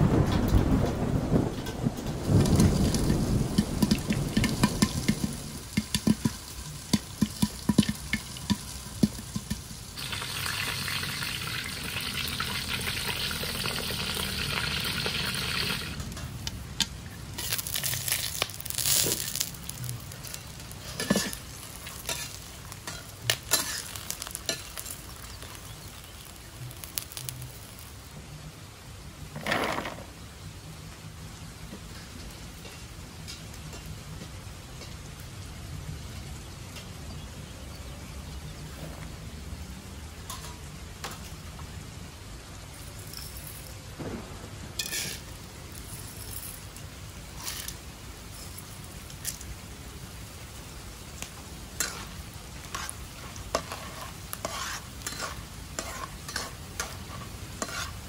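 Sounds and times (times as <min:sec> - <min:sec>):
oil sizzling in pan: 0:02.2 - 0:28.1, 0:40.0 - 0:58.0
popcorn popping: 0:02.4 - 0:10.6, 0:12.8 - 0:27.8.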